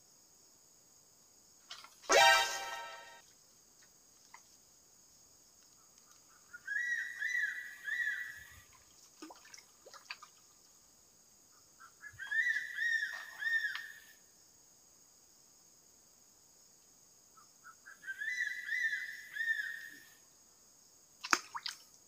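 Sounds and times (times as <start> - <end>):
insects droning: 0.0 - 22.0
bird whistling repeated notes: 2.1 - 3.2.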